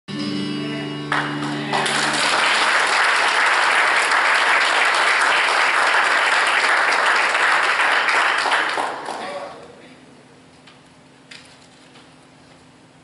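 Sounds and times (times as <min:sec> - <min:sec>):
held keyboard chord: 0:00.1 - 0:02.0
congregation applauding: 0:01.1 - 0:09.6.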